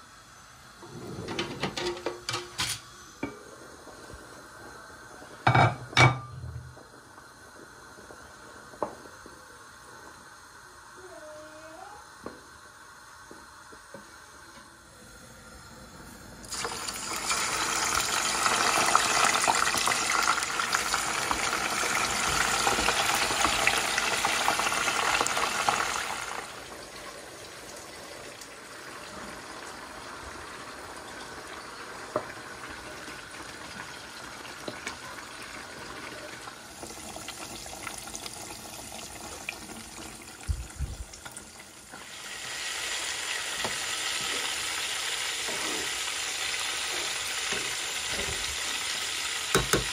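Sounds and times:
fish sizzling in hot oil: 16.4 - 49.9.

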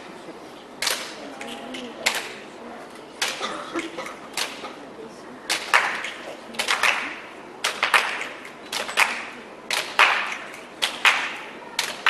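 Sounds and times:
group clapping in unison: 5.5 - 12.0.

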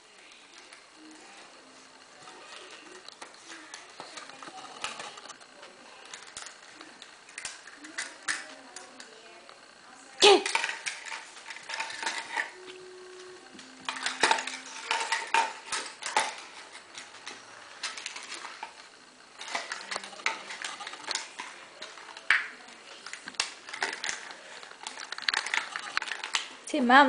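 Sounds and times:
dog claws scrambling on wood floor: 19.4 - 26.6.

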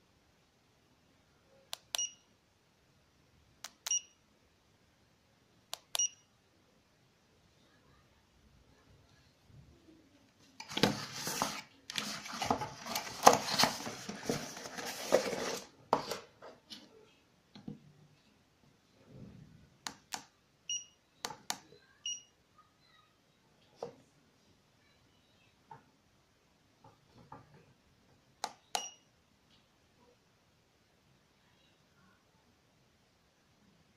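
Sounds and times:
objects rustling and scraping on table: 10.4 - 17.2.

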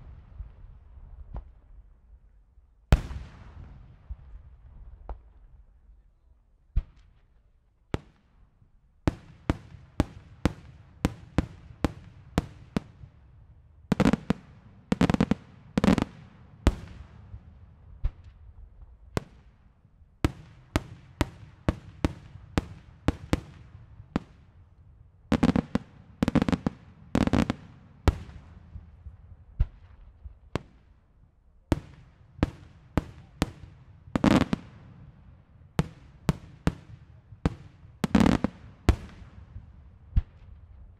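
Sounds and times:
fireworks bangs echoing: 13.9 - 18.3, 20.3 - 24.5, 25.3 - 29.9, 31.7 - 35.1, 35.8 - 40.4.

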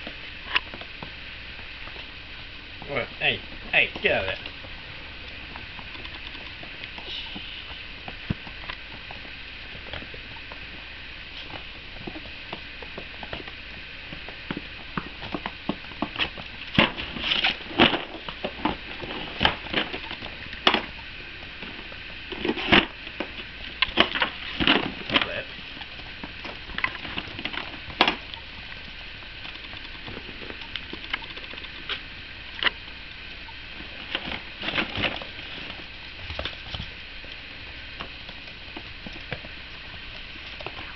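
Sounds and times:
puppy claws clicking on floor: 29.4 - 32.0.

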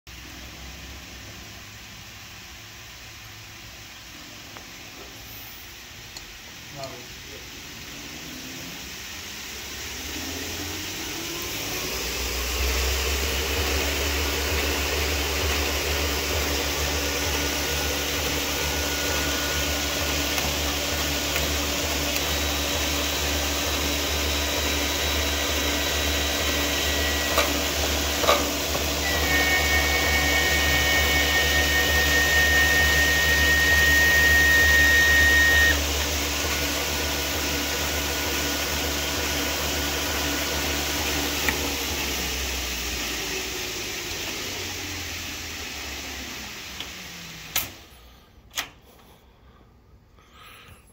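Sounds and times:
treadmill motor and belt hum: 9.3 - 47.8
high whine: 9.5 - 36.4.

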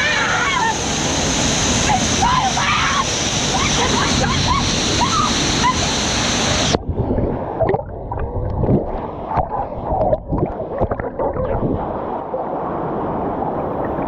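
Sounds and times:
waterfall pouring into pool: 0.0 - 6.8
bubbles crackling and popping: 6.8 - 12.0.

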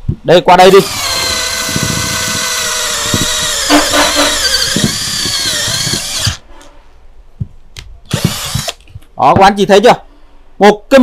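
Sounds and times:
cordless drill whining: 0.7 - 6.4, 8.1 - 8.8.

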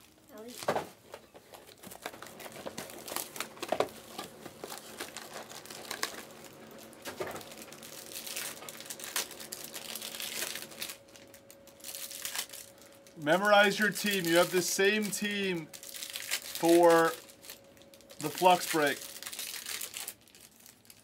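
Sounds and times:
plastic packaging crinkling and tearing: 0.0 - 21.0.

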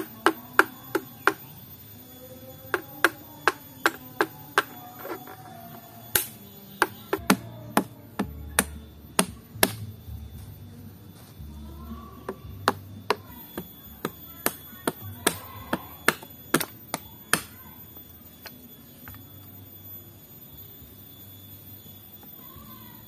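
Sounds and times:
stick knocking on coconut: 6.2 - 9.9, 12.2 - 17.5.

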